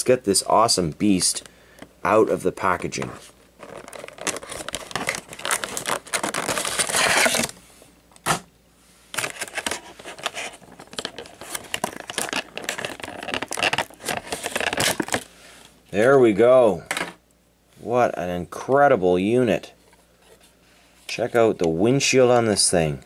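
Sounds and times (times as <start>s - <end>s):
plastic packaging crinkling: 2.8s - 7.6s, 9.1s - 15.3s.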